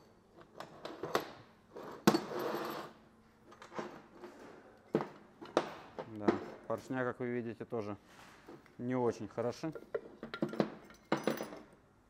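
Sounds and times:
metal engine parts clinking: 0:09.8 - 0:11.8.

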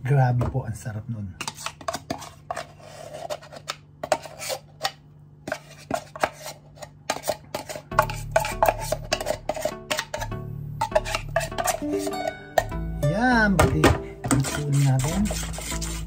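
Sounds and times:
metal spoon scraping steel bowl: 0:05.5 - 0:12.7, 0:14.2 - 0:16.0
background music: 0:07.9 - 0:16.0.

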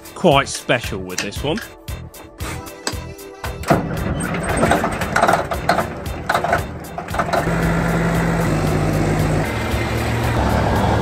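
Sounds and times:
diesel engine idling: 0:03.0 - 0:11.0.

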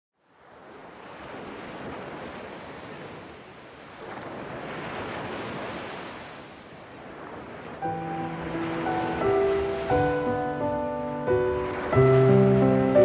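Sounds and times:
small waves breaking on shore: 0:00.2 - 0:13.0.

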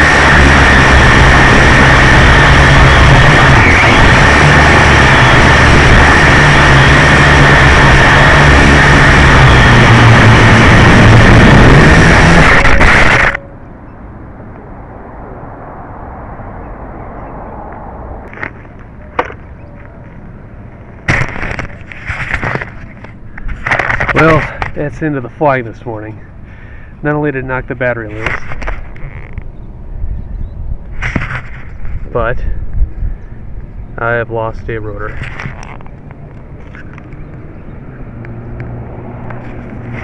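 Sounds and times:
drone crashing into grass: 0:00.0 - 0:13.4, 0:21.0 - 0:22.8
quadcopter motors whining: 0:00.0 - 0:13.7
handling noise: 0:18.3 - 0:24.8.

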